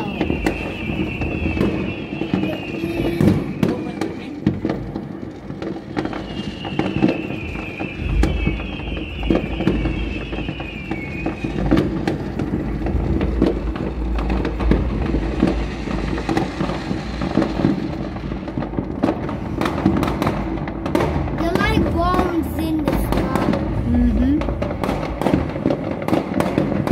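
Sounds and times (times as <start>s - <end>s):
high wavering whistle: 0.0s - 3.6s, 6.0s - 11.9s
fireworks bangs and crackles: 0.0s - 26.9s.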